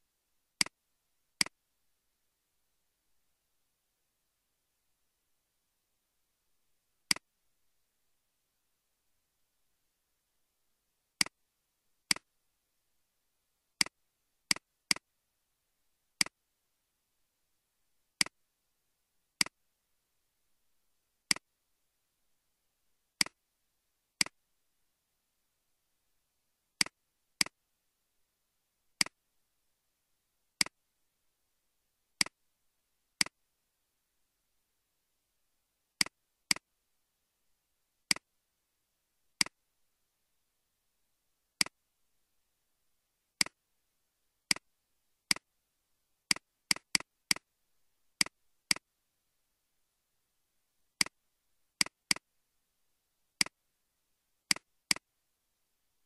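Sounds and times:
computer mouse clicks: 12.1 - 12.3, 26.8 - 27.6, 29.0 - 29.2, 38.1 - 38.3, 43.4 - 43.6, 44.5 - 44.7, 45.3 - 45.5, 46.3 - 47.5, 48.2 - 48.9, 51.0 - 51.2, 51.8 - 52.3, 53.4 - 53.6, 54.5 - 55.1.

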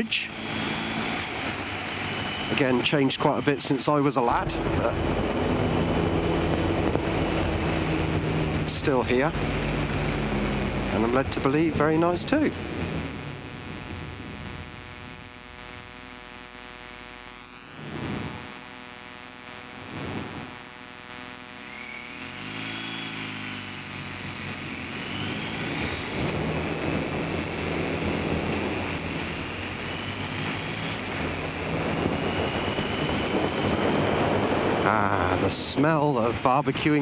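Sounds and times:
motorcycle engine accelerating: 0.0 - 18.8, 21.5 - 37.0
wind noise: 4.2 - 15.4, 25.1 - 37.0.

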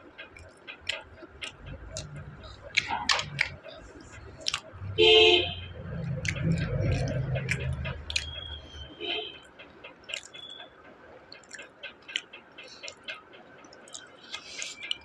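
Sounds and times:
person chewing food: 0.4 - 4.8, 5.8 - 8.6, 10.0 - 10.4, 11.3 - 12.2, 13.8 - 15.0
low hum: 1.2 - 9.3.

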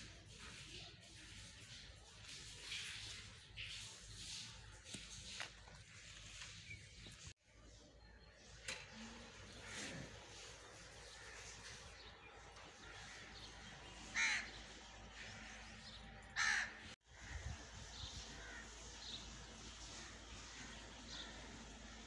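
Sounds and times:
bird harsh calls: 8.0 - 22.0.

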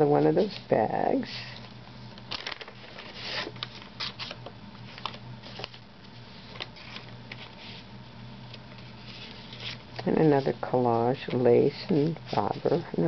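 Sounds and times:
paper bag rustling and crinkling: 1.3 - 13.0.

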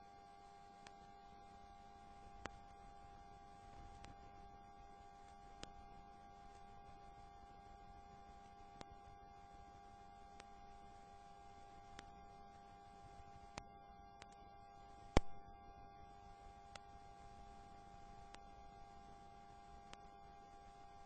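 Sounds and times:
faint electrical hum: 0.0 - 21.0
faint clicks: 0.7 - 1.1, 2.2 - 2.8, 3.6 - 4.6, 5.2 - 5.8, 8.4 - 9.1, 10.3 - 10.7, 11.8 - 12.6, 13.5 - 15.5, 16.6 - 17.2, 18.2 - 20.2.

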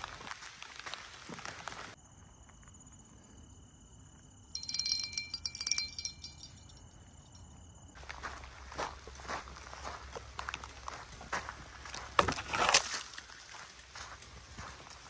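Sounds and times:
small bell jingling: 4.6 - 7.6.

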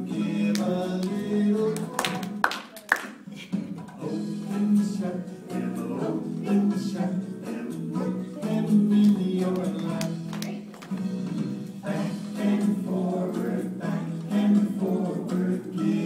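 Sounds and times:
person singing children's song: 0.0 - 2.4, 4.0 - 10.7, 11.8 - 16.0
hands clapping: 0.5 - 3.2, 8.9 - 11.2.

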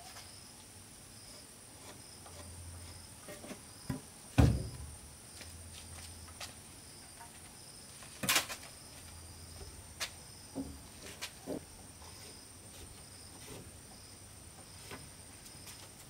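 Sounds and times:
wooden planks knocking: 3.9 - 5.0.

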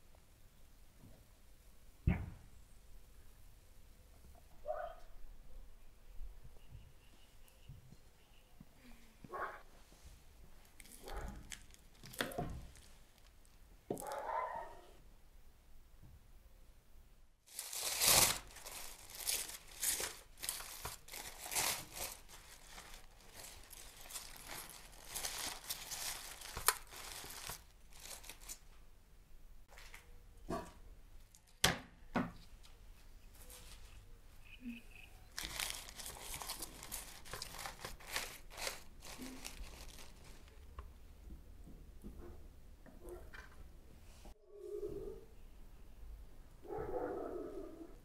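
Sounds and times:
foil and paper crinkling: 10.6 - 13.6, 17.5 - 28.7, 35.3 - 40.7.

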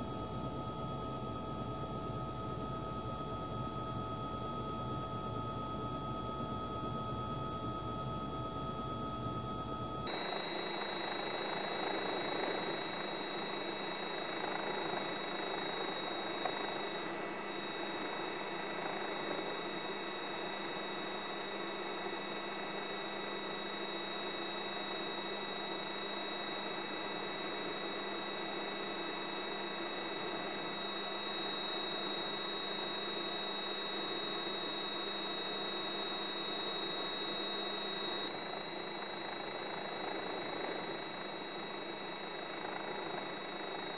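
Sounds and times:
faint hum: 0.0 - 43.9
thin high-pitched whine: 10.1 - 43.9.

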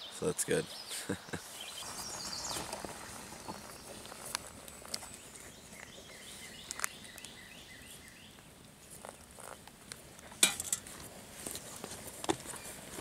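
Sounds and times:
birds chirping: 0.0 - 9.6
metal pot clicks and taps: 10.4 - 10.9.

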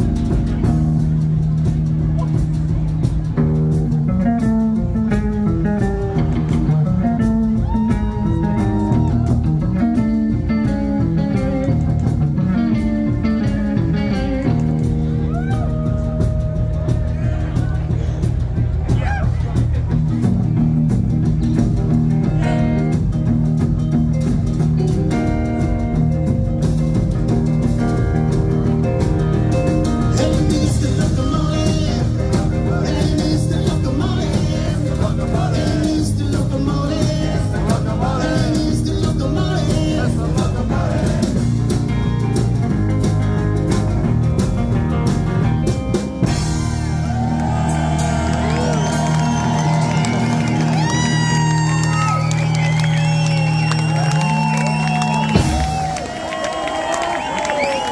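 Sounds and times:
rockabilly band playing live: 0.0 - 57.9
crowd whooping and whistling: 7.6 - 9.5, 15.2 - 16.4, 46.4 - 57.9
lead vocal singing: 30.1 - 42.0.

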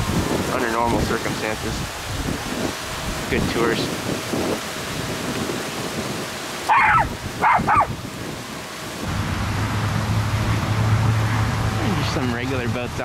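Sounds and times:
wind noise on microphone: 0.0 - 13.0
steady low hum: 6.0 - 13.0
dog barking: 6.7 - 7.9.

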